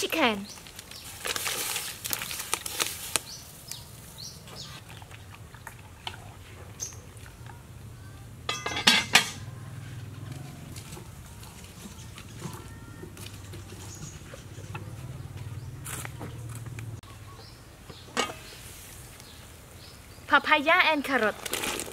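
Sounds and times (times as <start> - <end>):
pot lid clattering: 8.5 - 9.4
metal ladle clinking against pot: 8.5 - 9.5.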